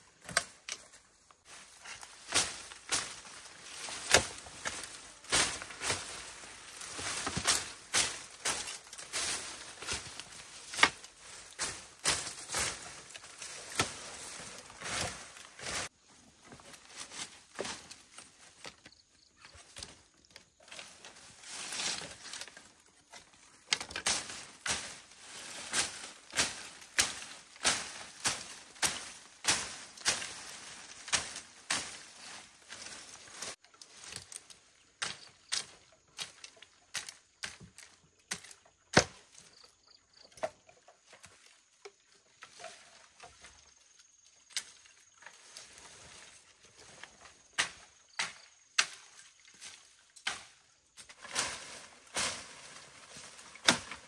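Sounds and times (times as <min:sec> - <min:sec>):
leaves rustling: 0:00.0 - 0:54.0
vine snapping: 0:01.8 - 0:15.9, 0:20.6 - 0:39.2, 0:50.2 - 0:54.0.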